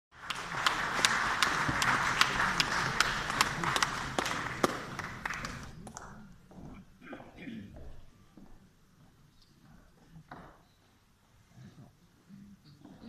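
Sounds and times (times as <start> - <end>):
audience applauding: 0.1 - 6.3.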